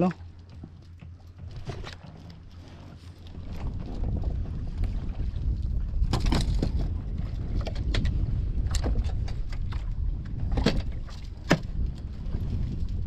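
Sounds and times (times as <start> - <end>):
wind rumble on microphone: 0.0 - 13.0
knocks and clicks of fishing gear: 0.2 - 3.7, 6.0 - 12.0.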